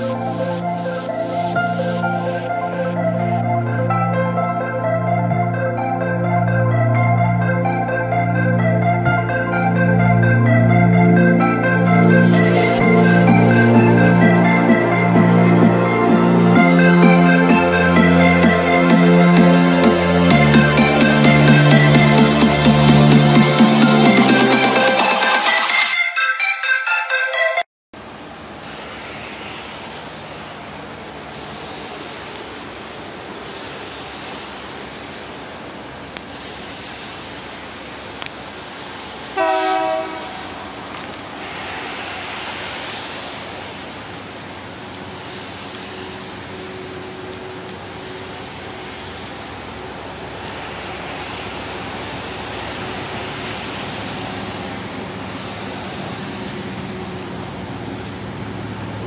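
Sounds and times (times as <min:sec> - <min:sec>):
locomotive horn blast: 0:39.4 - 0:40.8.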